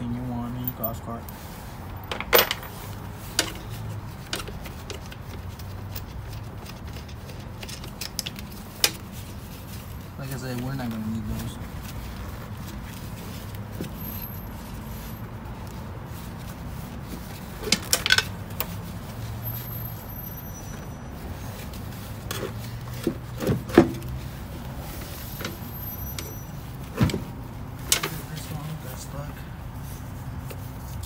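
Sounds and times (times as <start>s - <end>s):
metal tools clinking on bolts: 0.5s - 1.3s, 2.0s - 9.1s, 17.6s - 18.7s.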